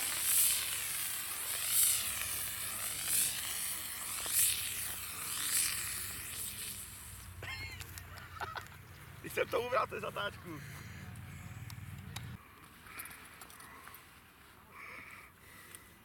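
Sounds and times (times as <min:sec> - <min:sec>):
pyrotechnic charge hissing: 0:00.0 - 0:08.1.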